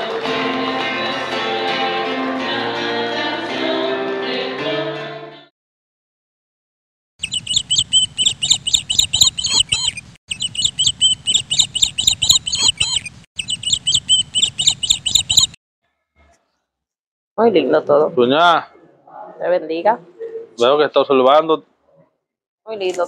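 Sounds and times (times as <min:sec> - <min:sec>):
bird chirping rapidly: 0:07.2 - 0:15.6.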